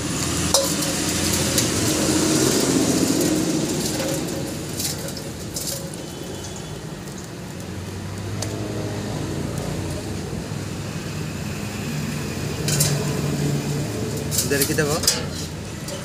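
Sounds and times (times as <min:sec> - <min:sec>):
motor vehicle engine humming: 0:00.0 - 0:14.6
metal parts clicking in bowl: 0:00.4 - 0:07.3, 0:12.6 - 0:13.0, 0:14.2 - 0:16.0.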